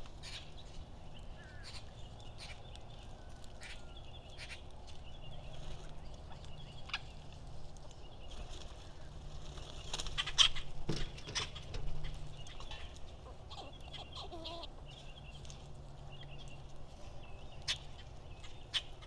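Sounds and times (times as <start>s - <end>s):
parakeet chatter: 1.4s - 2.9s, 8.3s - 16.6s.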